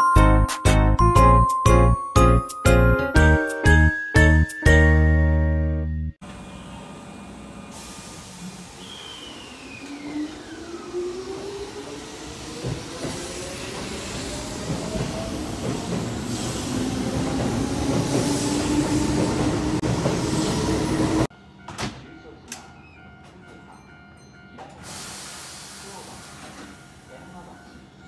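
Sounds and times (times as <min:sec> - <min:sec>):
electric train motors whining: 0:06.2 - 0:14.6.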